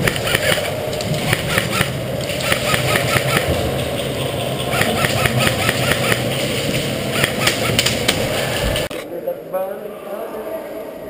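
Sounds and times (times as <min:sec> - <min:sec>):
airsoft gunfire clicks: 0:00.0 - 0:03.5, 0:07.2 - 0:08.2
low mechanical hum: 0:00.0 - 0:08.9.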